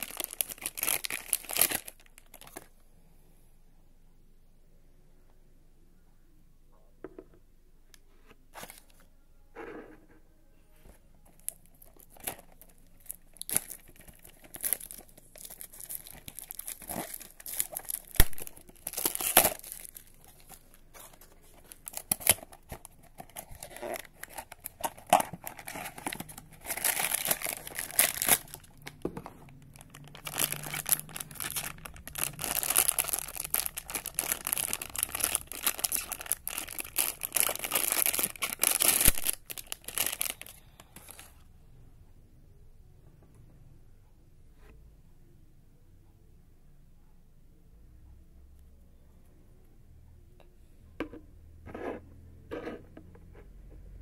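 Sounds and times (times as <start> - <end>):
foil bag crinkling and tearing: 0.0 - 2.7, 11.4 - 41.3.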